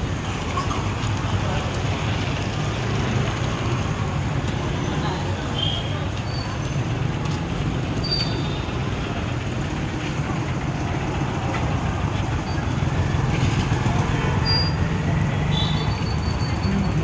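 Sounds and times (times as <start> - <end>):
hubbub of distant voices: 0.0 - 17.0
motorcycle engines running: 0.0 - 17.0.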